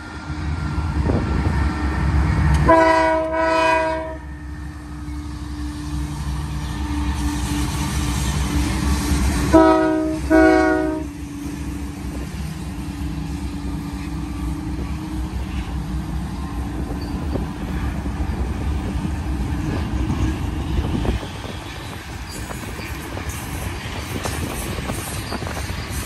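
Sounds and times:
train horn blast: 2.5 - 4.5, 9.4 - 11.2.

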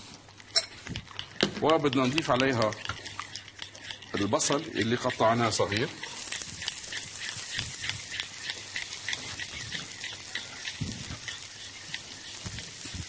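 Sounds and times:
onion sizzling in a frying pan: 4.4 - 13.0.

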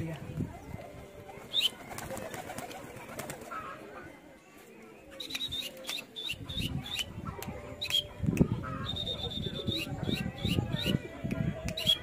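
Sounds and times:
pigeon wings flapping: 1.4 - 3.6.

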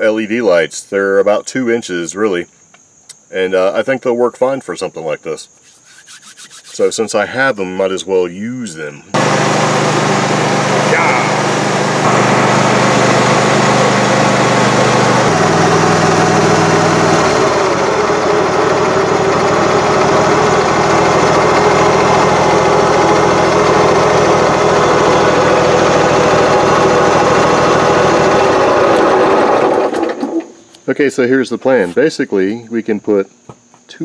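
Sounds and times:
riding lawn mower engine running: 9.1 - 30.6.

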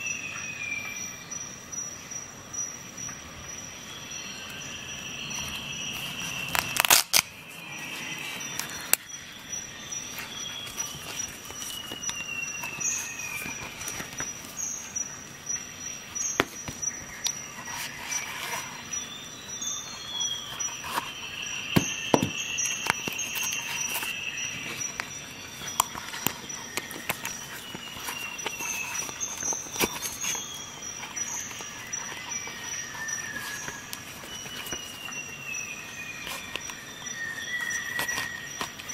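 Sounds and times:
steady high whine: 0.0 - 38.9.

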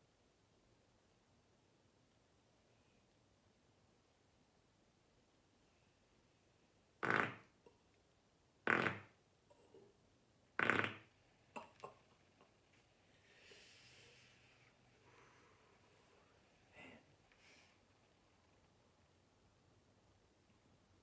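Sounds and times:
soft breathy sound: 2.5 - 3.4, 11.2 - 18.7
man farting: 7.0 - 7.6, 8.7 - 9.6, 10.6 - 12.0.

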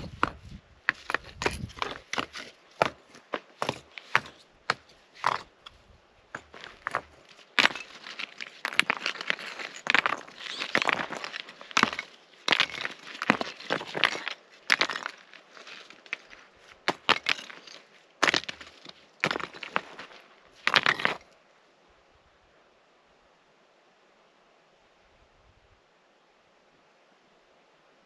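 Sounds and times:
gravel crunching: 0.0 - 21.4.

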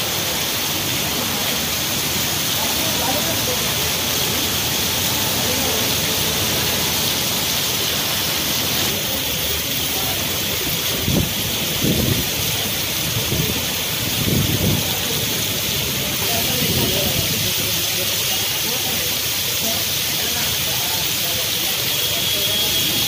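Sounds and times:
heavy rain pouring: 0.0 - 23.0
wind gusts buffeting microphone: 11.0 - 15.2.

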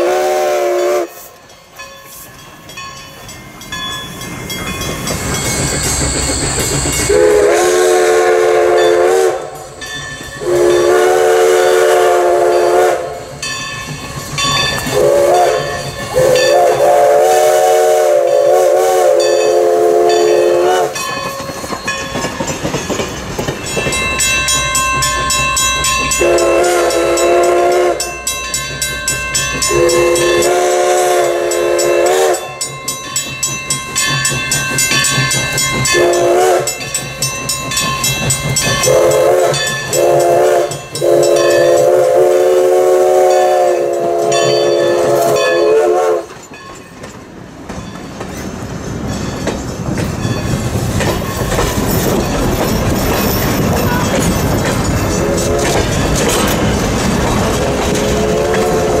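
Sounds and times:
steam whistle blasts: 0.0 - 1.4, 7.0 - 9.7, 10.4 - 13.3, 14.9 - 21.0, 26.2 - 28.2, 29.6 - 32.6, 35.9 - 36.8, 38.8 - 46.4, 57.6 - 59.0
rail clatter: 0.2 - 59.0
steam hiss: 3.9 - 21.7, 50.2 - 59.0
steam engine exhaust chuffing: 4.8 - 9.7, 10.4 - 21.5, 33.8 - 46.3.

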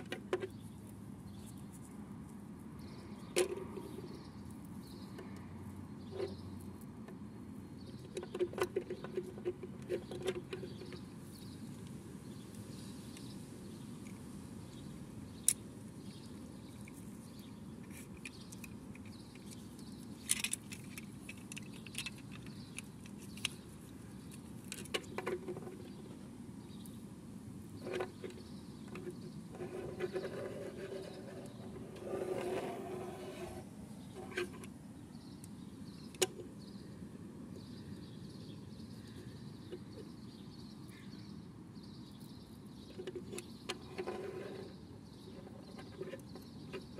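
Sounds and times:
plastic toy parts clicking: 17.9 - 23.6.

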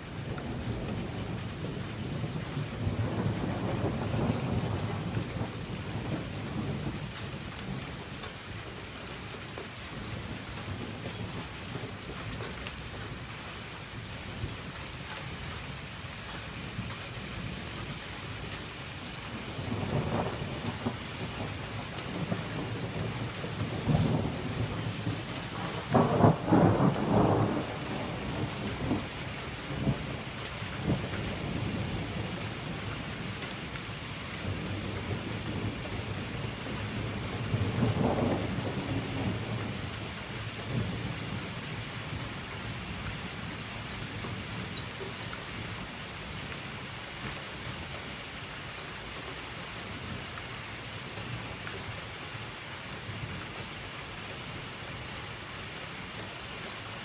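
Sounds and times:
thunder rumbling: 0.0 - 8.1, 16.6 - 44.8
steady rain falling: 0.0 - 57.0.

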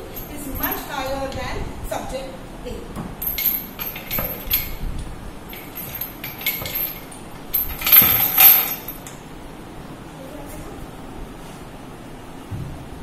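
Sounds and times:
metal chain clinking and rattling: 0.0 - 1.5, 3.2 - 4.8, 5.5 - 9.2.

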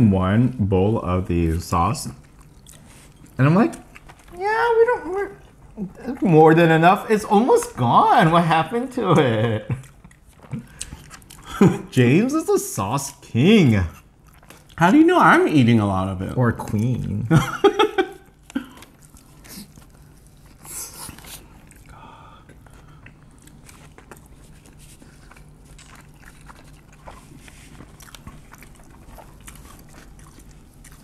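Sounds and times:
crunchy chewing and biting: 2.1 - 4.4, 9.7 - 11.5, 18.2 - 31.0.

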